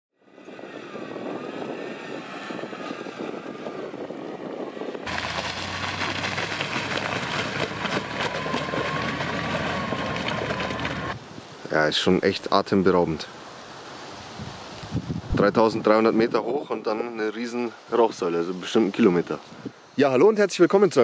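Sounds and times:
car engine running: 5.1 - 11.2
ice cracking: 5.1 - 11.2
splashes: 5.1 - 11.2
water sloshing: 5.1 - 11.2.

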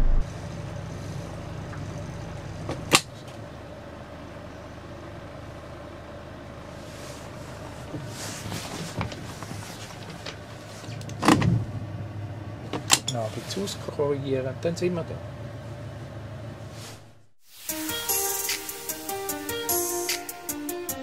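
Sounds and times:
motorboat engine running: 0.0 - 10.6.

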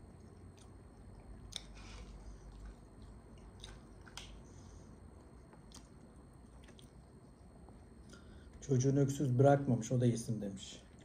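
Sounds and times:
chewing food: 0.0 - 8.6.

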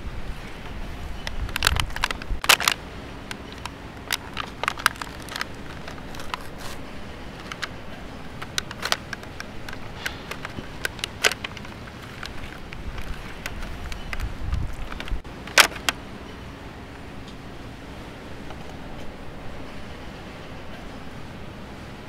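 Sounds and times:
plastic blister pack crinkling: 1.2 - 16.0.

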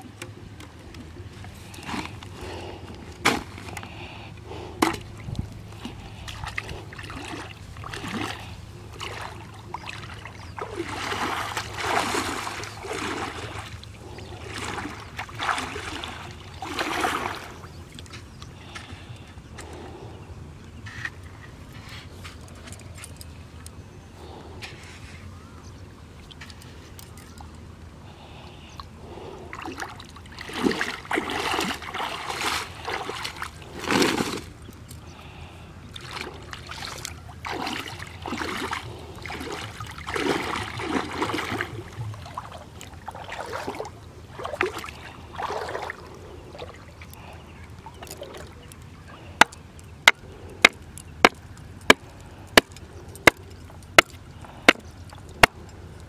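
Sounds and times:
river water sloshing and splashing: 0.0 - 20.0, 24.2 - 56.0.

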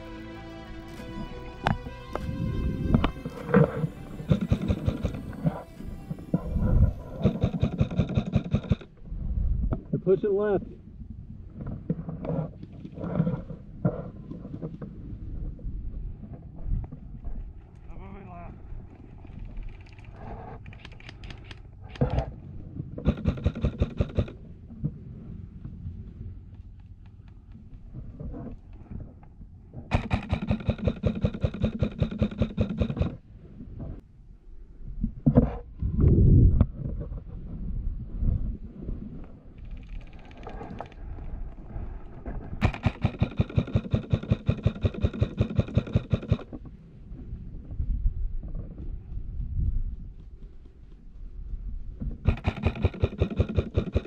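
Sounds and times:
airsoft rifle shots: 7.2 - 8.9, 23.0 - 24.4, 29.9 - 33.2, 42.6 - 46.5, 52.3 - 54.0.

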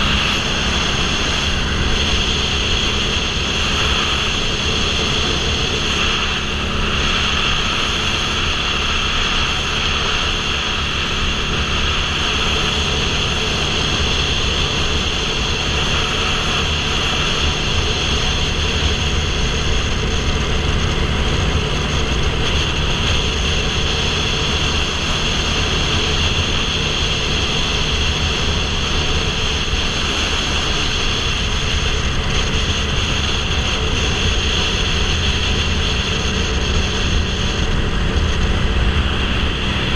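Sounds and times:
motorcycle engine cruising: 0.0 - 39.9
wind noise on microphone: 0.0 - 39.9.

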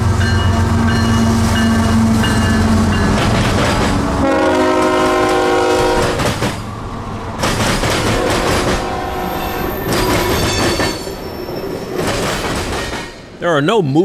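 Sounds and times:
diesel locomotive engine rumble: 0.0 - 13.4
locomotive horn chord: 4.0 - 6.2, 8.1 - 9.7.

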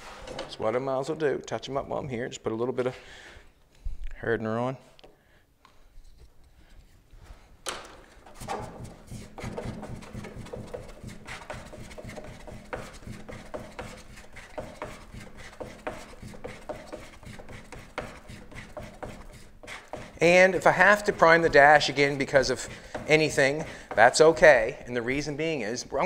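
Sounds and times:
spreader scraping filler on board: 8.2 - 24.7.

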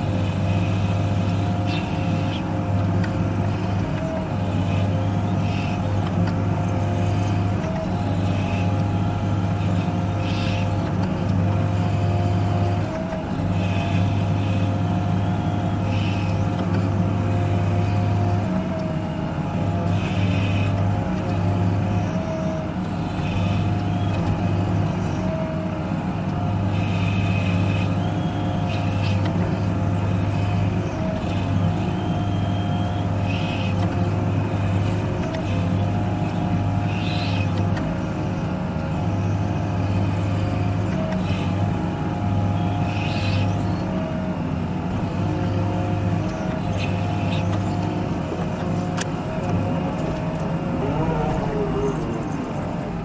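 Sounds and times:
diesel engine running: 0.0 - 53.0
thin whine: 46.6 - 53.0.

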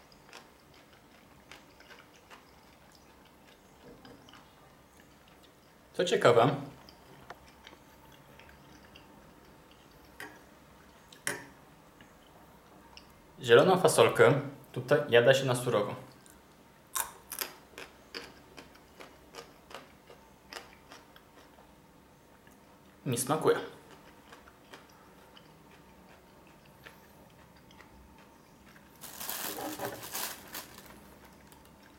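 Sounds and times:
crackling rustle on microphone: 28.9 - 31.8.

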